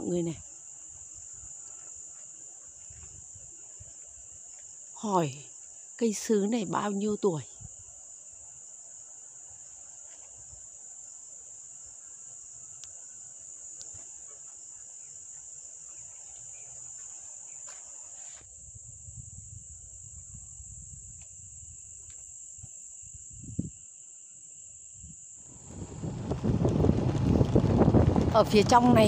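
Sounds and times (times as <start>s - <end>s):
insects droning: 0.0s - 29.0s
wind rumble on microphone: 18.5s - 22.0s, 23.0s - 23.8s, 25.0s - 29.0s.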